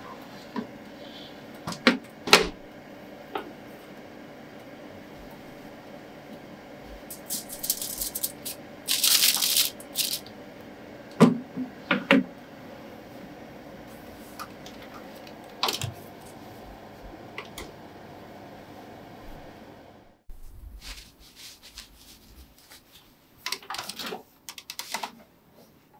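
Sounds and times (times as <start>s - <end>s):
oven hum: 0.0s - 23.1s
aluminium foil crinkling: 7.1s - 10.3s.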